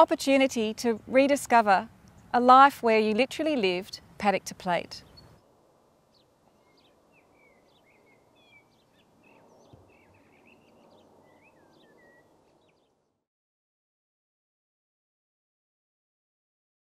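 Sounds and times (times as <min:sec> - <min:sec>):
small birds chirping: 0:04.4 - 0:05.4, 0:06.1 - 0:13.0.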